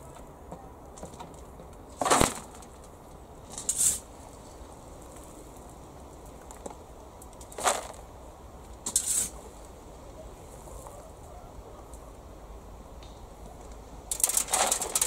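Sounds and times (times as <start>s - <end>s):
shovel scraping and crunching compost: 1.9s - 2.8s, 3.5s - 4.1s, 7.4s - 8.0s, 8.8s - 9.5s, 14.1s - 15.0s.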